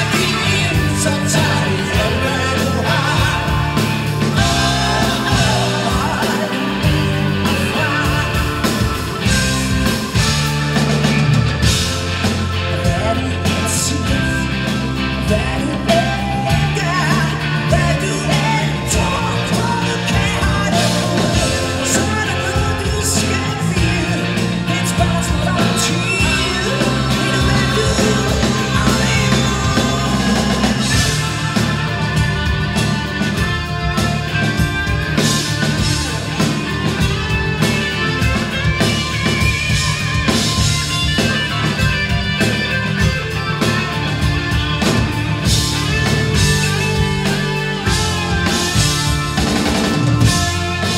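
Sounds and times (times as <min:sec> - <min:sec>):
woman singing lead: 0:00.0 - 0:09.4, 0:15.2 - 0:31.5
live rock band playing: 0:00.0 - 0:50.9.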